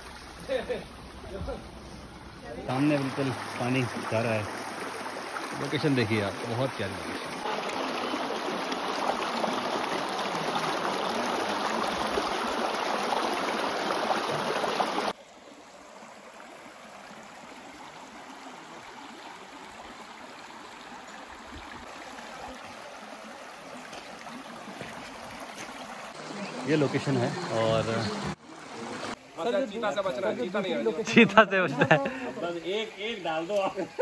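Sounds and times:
stream rushing over stones: 0:00.0 - 0:34.0.

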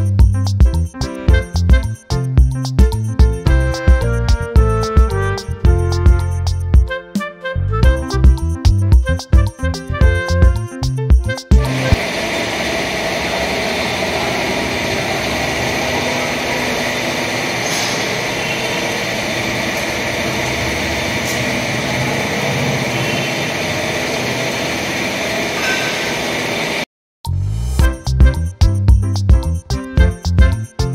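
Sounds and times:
steady machine noise: 0:11.5 - 0:26.8.

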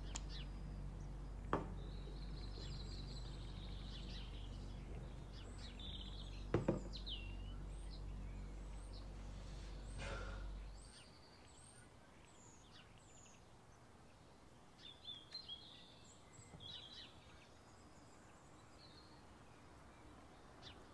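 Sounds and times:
low steady hum: 0:00.0 - 0:20.9
small birds chirping: 0:00.0 - 0:20.9
brief knocks: 0:06.5 - 0:07.0.

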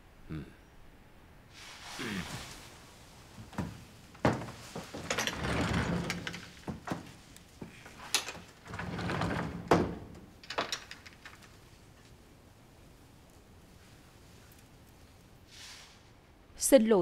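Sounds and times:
clothing rustling: 0:01.5 - 0:15.3
wooden sliding door sliding: 0:01.6 - 0:12.2
footsteps on wooden floor: 0:03.4 - 0:05.8.

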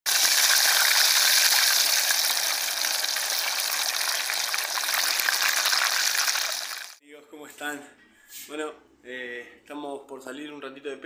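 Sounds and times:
food deep-frying in oil: 0:00.1 - 0:07.0.

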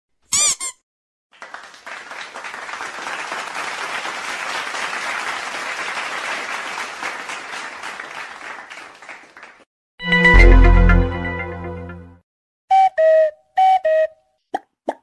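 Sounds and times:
crowd clapping: 0:01.3 - 0:09.7.

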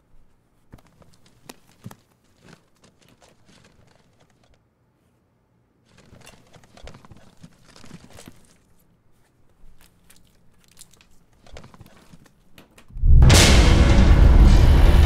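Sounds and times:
packing paper crinkling: 0:00.6 - 0:04.6, 0:05.8 - 0:12.9.

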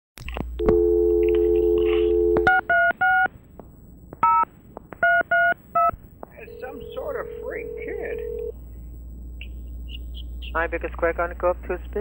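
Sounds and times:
telephone dial tone: 0:00.6 - 0:02.7, 0:06.5 - 0:08.5.

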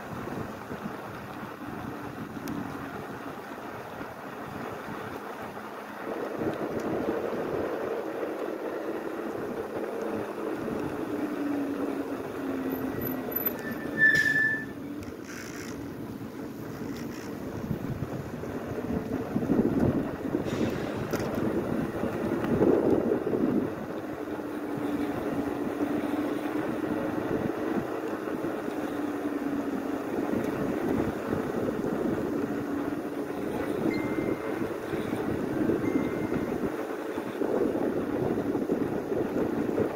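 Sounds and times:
bike tyres on paved street: 0:00.0 - 0:39.9
wind and riding noise: 0:00.0 - 0:39.9
brief high squeal: 0:13.4 - 0:14.8.

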